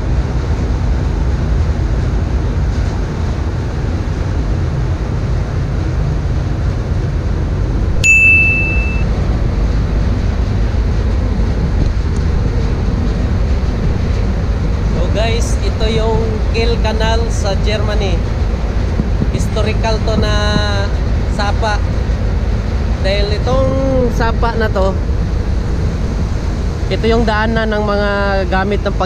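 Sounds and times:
ship rumble: 0.0 - 29.0
wind on microphone: 0.0 - 29.0
notification ding: 8.0 - 9.1.

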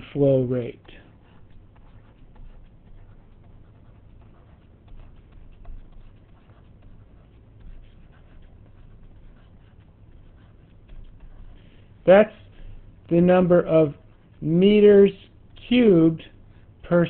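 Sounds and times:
low steady hum: 0.0 - 17.0
stylus tapping on tablet screen: 0.8 - 16.9.

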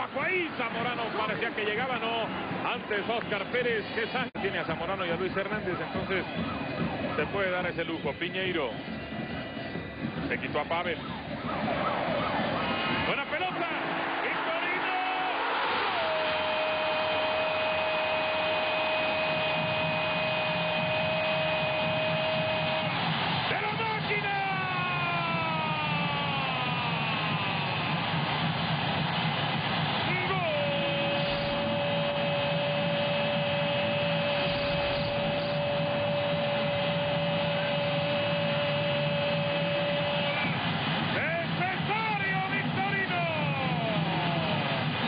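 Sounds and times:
stadium crowd cheering: 0.0 - 45.0
commentator's held goal cry: 23.5 - 27.0, 30.1 - 40.5, 41.2 - 44.8.

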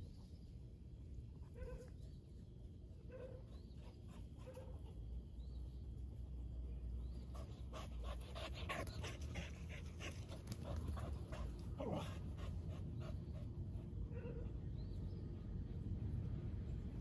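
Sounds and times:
dogs panting: 7.1 - 14.6.

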